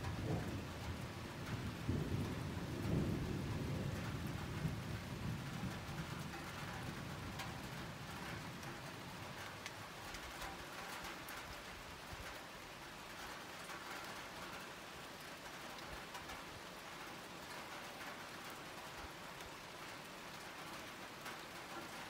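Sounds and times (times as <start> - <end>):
low thunder rumble: 0.0 - 9.2
steady rain falling: 0.0 - 22.0.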